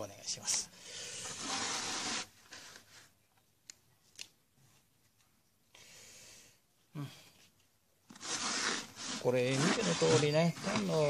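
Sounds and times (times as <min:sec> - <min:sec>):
hands rustling potting soil: 0:07.4 - 0:11.0.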